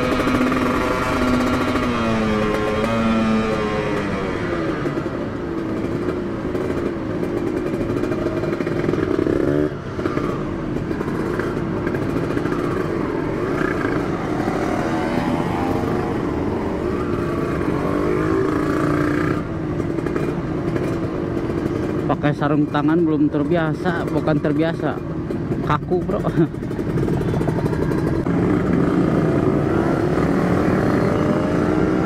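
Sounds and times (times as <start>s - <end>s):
motorcycle engine accelerating: 0.0s - 22.1s, 23.6s - 32.0s.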